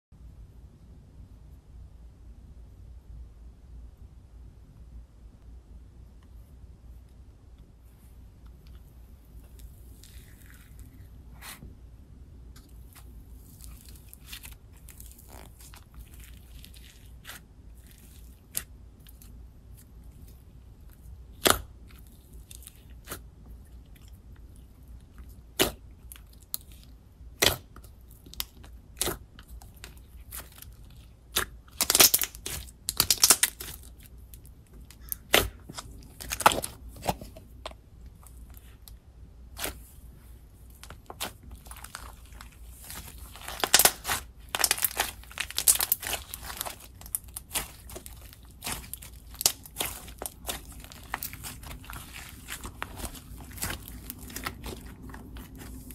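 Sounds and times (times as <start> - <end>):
slime clicking and popping: 31.3 - 33.9.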